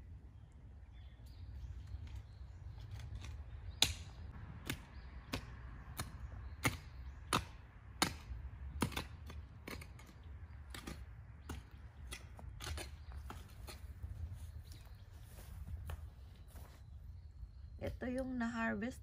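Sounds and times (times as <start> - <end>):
hoe chopping into soil: 3.0 - 14.0.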